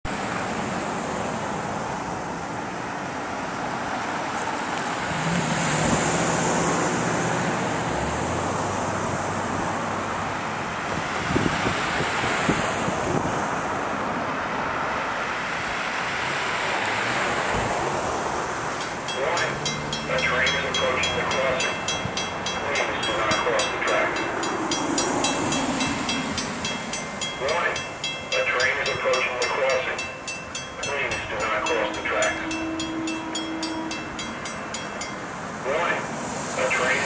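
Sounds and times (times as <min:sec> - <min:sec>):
cars driving past: 0:00.1 - 0:37.0
wind rumbling on microphone: 0:10.7 - 0:14.7.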